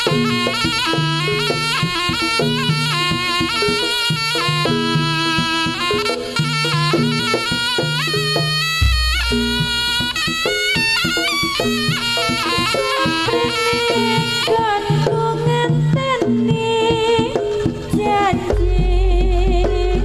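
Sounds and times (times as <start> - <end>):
gamelan percussion: 0.0 - 20.0
hand drums: 0.0 - 20.0
shrill reed wind melody: 8.1 - 13.0.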